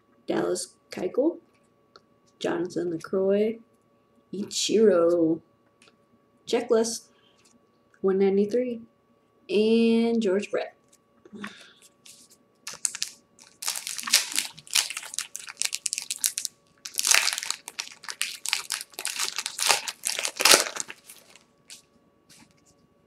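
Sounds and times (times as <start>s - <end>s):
plastic wrapper tearing and crinkling: 12.7s - 21.4s.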